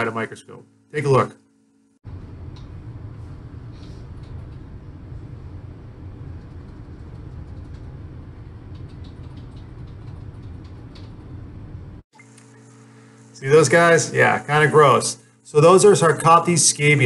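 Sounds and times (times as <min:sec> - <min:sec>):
low rumbling background noise: 0:02.1 - 0:12.0.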